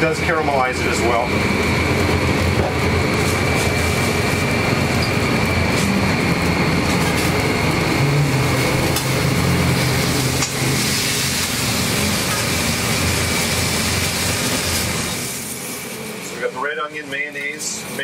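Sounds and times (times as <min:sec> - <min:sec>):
kitchen equipment drone: 0:00.0 - 0:18.0
food sizzling on griddle: 0:08.2 - 0:18.0.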